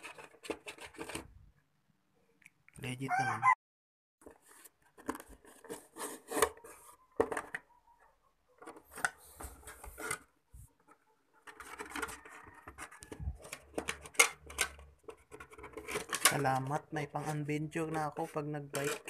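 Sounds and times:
rubbing and scraping: 0.0 - 1.4, 4.2 - 7.6, 8.6 - 19.0.

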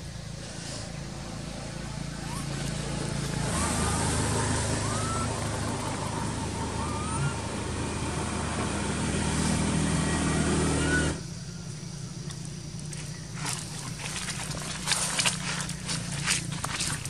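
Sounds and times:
vehicle engine humming: 0.0 - 17.0
faint rising whistle: 1.8 - 12.1.

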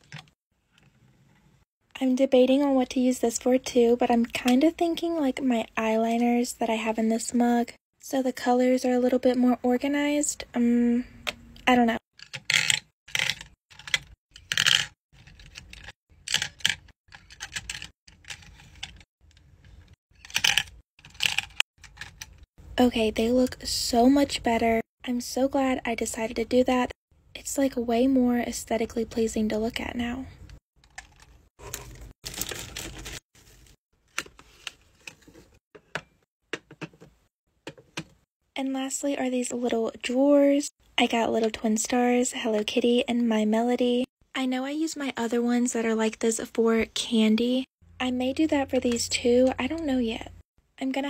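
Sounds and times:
tissue paper crinkling: 31.6 - 33.8.

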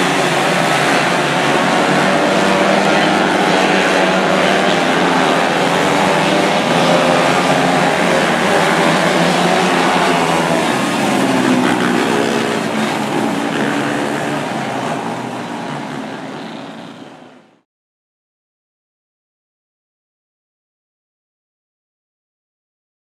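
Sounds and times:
small racing car engines: 0.0 - 17.6.

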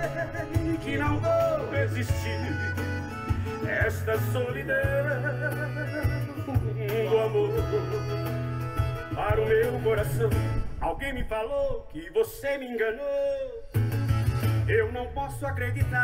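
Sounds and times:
deep bass line: 0.0 - 11.4, 13.8 - 16.0
country song over speakers: 0.0 - 16.0.

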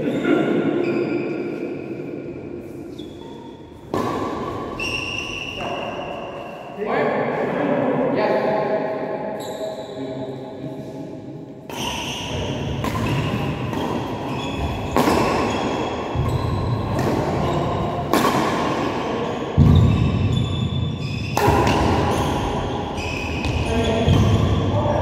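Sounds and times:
shoe squeaks on court floor: 0.0 - 1.7, 2.9 - 3.7, 4.7 - 6.7, 11.7 - 17.8, 19.2 - 24.7
racket striking shuttlecock: 3.8 - 4.8, 12.8 - 19.0, 21.3 - 22.6.

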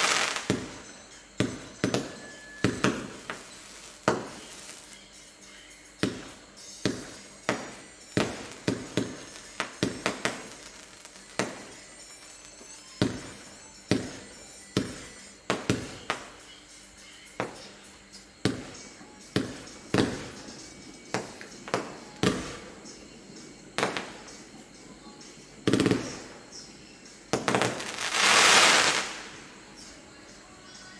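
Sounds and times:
firework bangs: 0.0 - 4.8, 6.0 - 11.8, 12.9 - 16.3, 19.4 - 22.7, 23.8 - 24.3, 27.3 - 29.4
firework crackling: 0.0 - 30.1.

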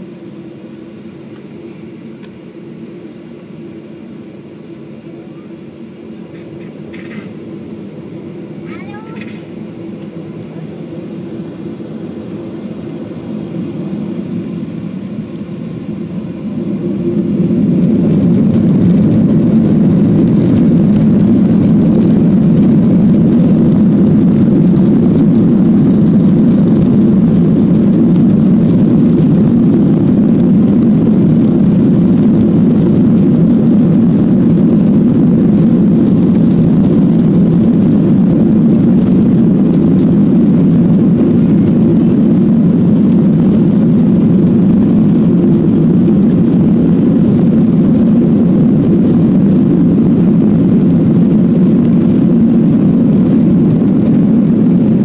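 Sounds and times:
jet engines droning in cabin: 0.0 - 55.0.

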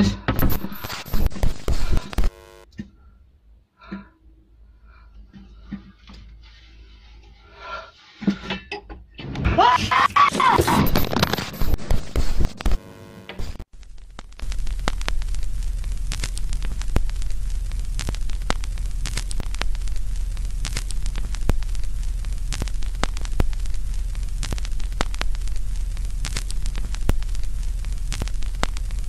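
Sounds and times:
static hiss: 0.2 - 2.7, 9.9 - 29.0
crackles and pops: 0.2 - 2.8, 9.9 - 29.0
low hum: 10.8 - 29.0.

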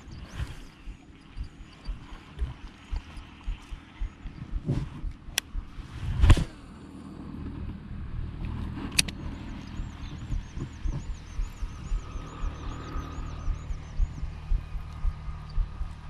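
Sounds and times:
high repeating chirp: 0.0 - 5.8, 9.6 - 16.0
wind buffeting microphone: 0.0 - 16.0.

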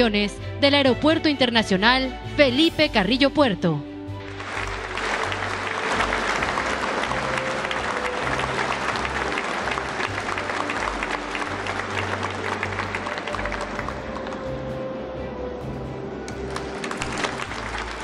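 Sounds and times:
low bass music: 0.0 - 18.0
audience applauding: 4.2 - 14.9, 16.3 - 18.0.

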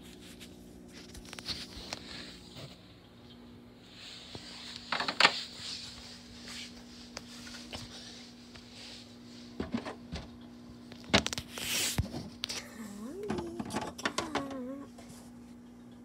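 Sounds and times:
steady low hum: 0.0 - 16.0
knocks and rustles: 9.6 - 10.4.

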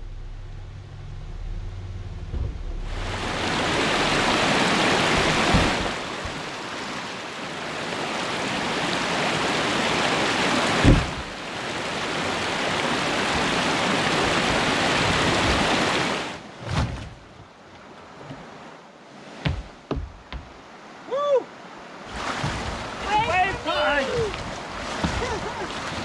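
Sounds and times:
dull thumps: 2.2 - 3.1, 5.1 - 6.5, 10.8 - 11.3, 19.4 - 20.6.

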